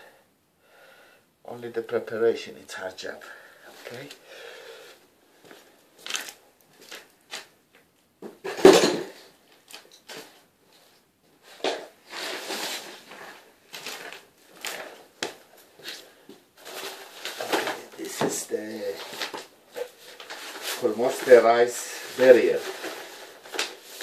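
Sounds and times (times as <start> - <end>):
rustling: 9.2 - 24.0.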